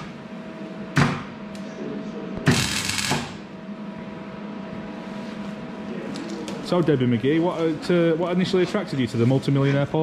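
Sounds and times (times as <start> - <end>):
steady machine hum: 0.0 - 10.0
welding burst: 2.5 - 3.4.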